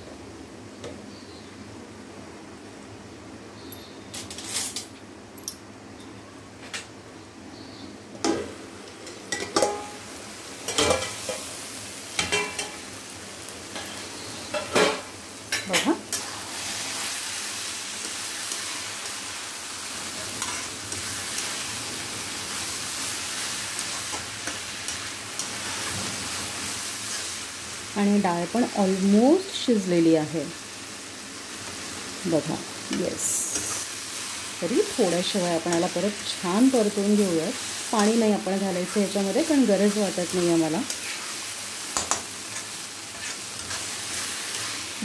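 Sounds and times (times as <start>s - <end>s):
food sizzling in a pan: 8.2s - 45.0s
steel cookware clanking: 9.0s - 10.0s, 10.7s - 11.4s
spatula scraping a pan: 42.0s - 44.8s.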